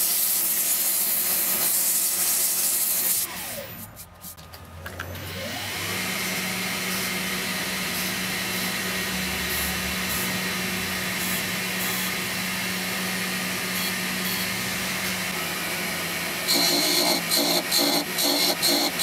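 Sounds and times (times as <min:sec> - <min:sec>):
lathe motor whining: 0:03.2 - 0:04.2, 0:04.8 - 0:19.0.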